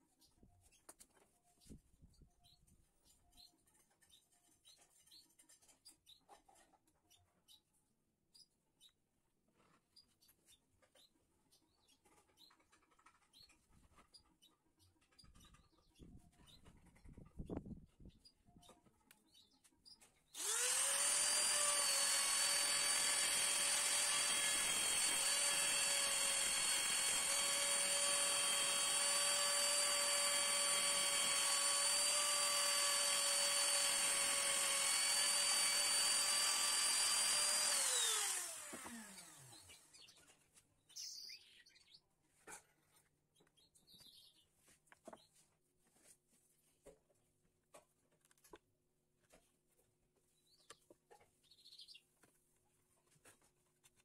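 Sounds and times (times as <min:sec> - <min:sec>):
trim router whining: 0:20.4 - 0:39.9.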